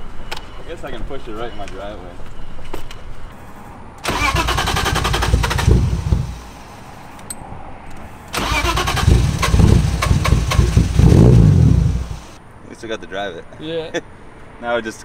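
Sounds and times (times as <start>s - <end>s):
engine cranking on starter: 4.0s - 6.5s, 8.3s - 12.4s.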